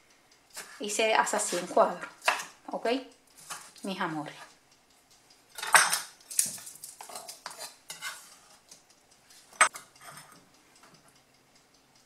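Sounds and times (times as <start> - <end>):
knife on wooden cutting board: 6.4 - 8.4.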